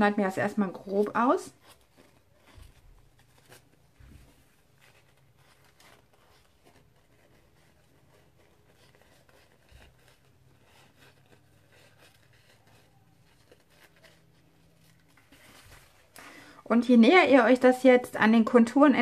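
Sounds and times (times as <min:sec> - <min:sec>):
soft paper handling: 0:00.0 - 0:17.7
scissors snipping paper: 0:04.8 - 0:15.2.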